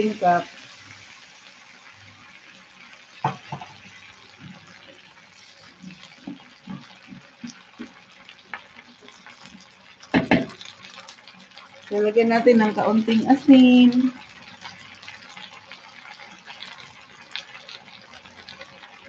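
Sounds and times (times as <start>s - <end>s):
water pouring into pan: 0.0s - 19.0s
knock: 3.2s - 3.7s, 10.2s - 10.5s.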